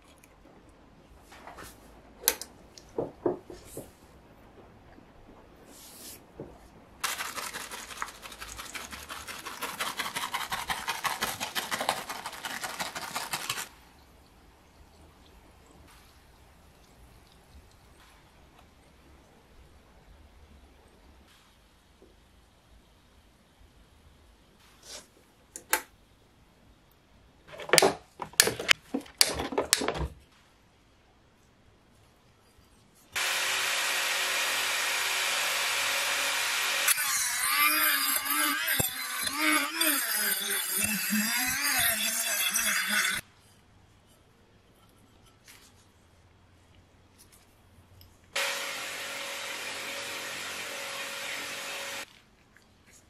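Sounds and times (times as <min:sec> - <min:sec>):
knife scraping steel wire: 0:36.9 - 0:43.2.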